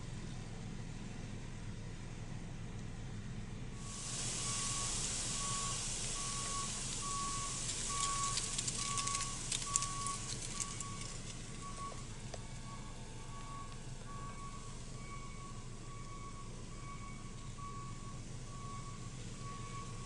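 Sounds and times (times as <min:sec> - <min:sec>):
steady hiss: 0:03.8 - 0:12.1
brush crackling as it burns: 0:03.8 - 0:12.2
truck reversing alarm beeping: 0:03.8 - 0:20.0.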